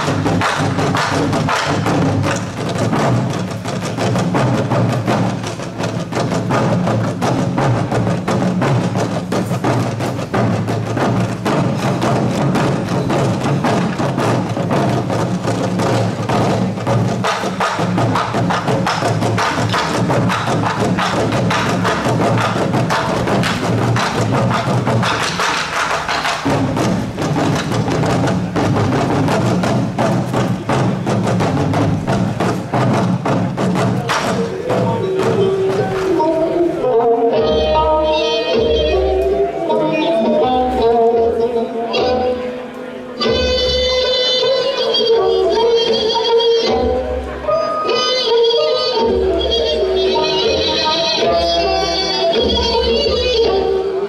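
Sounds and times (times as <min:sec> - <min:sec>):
barrel drums in fast rhythm: 0:00.0 - 0:36.4
traditional musical accompaniment: 0:00.0 - 0:54.0.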